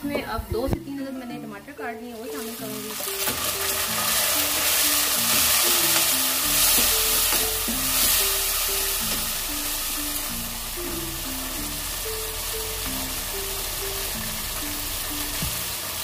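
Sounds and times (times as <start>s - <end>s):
food sizzling in a frying pan: 0.0s - 16.0s
wooden spatula stirring: 2.5s - 9.4s.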